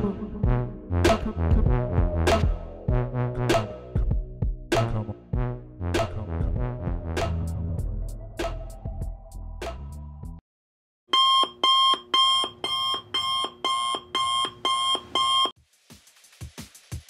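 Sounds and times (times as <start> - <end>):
music: 0.0 - 10.4, 15.6 - 17.0
electronic alarm beeping: 11.1 - 15.6.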